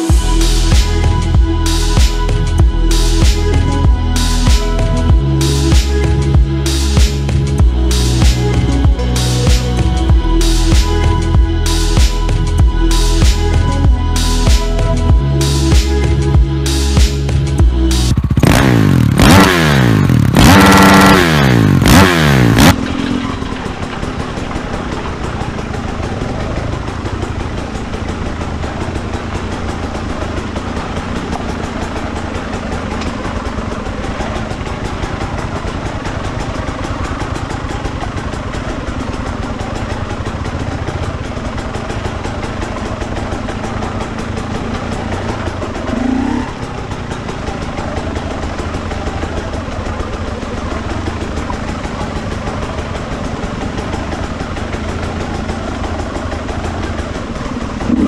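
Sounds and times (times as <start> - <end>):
dirt bike engine running: 0.0 - 58.0
wind: 0.0 - 58.0.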